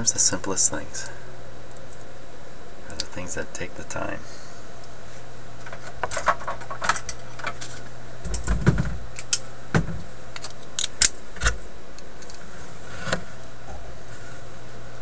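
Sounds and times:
steady low hum: 0:00.0 - 0:15.0
dull knocks: 0:08.4 - 0:09.0.

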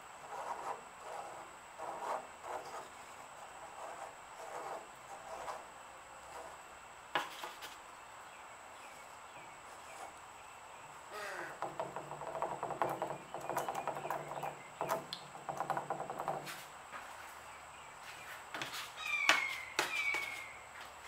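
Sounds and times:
paintbrush rubbing on canvas: 0:00.3 - 0:05.6.

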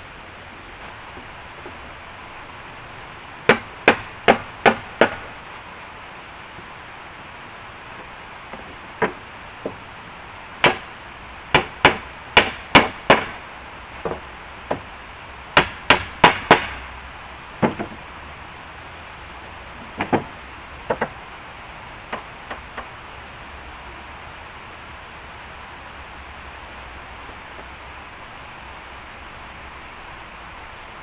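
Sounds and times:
steady background hiss: 0:00.0 - 0:31.0
tool knocking on wood: 0:14.0 - 0:14.8, 0:17.6 - 0:18.0, 0:20.0 - 0:20.3, 0:20.9 - 0:21.1.

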